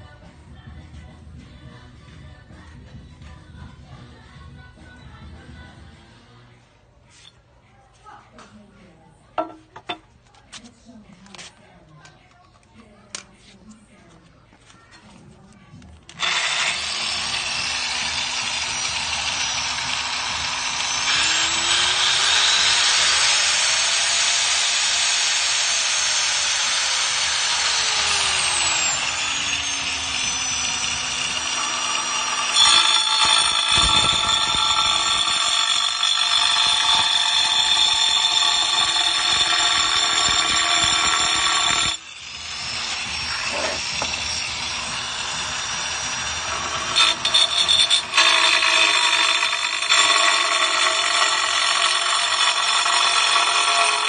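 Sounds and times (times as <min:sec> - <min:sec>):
angle grinder cutting tile: 0:16.1 - 0:54.0.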